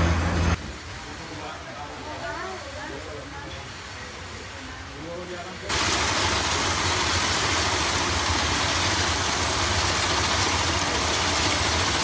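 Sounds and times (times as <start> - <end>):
twine-spinning machine running: 5.7 - 12.0.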